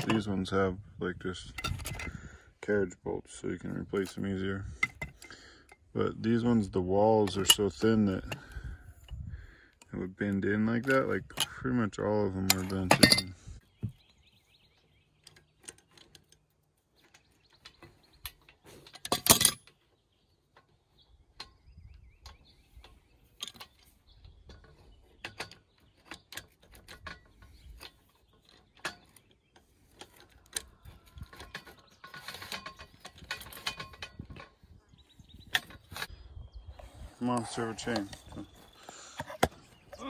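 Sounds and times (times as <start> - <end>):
metal clank: 12.4 - 13.4, 18.8 - 19.7
metal clicks and clinks: 17.1 - 19.8, 30.0 - 34.5.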